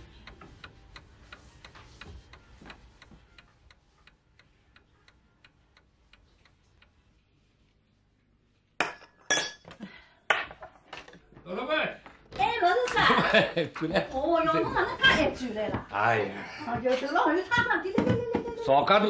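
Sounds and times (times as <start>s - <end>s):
mantel clock ticking: 0.0s - 7.1s.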